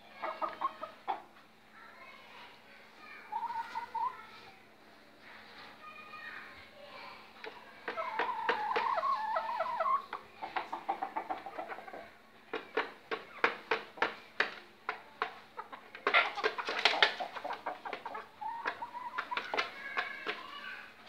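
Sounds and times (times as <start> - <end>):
hens clucking: 0.0 - 1.4, 3.3 - 4.2, 7.4 - 20.7.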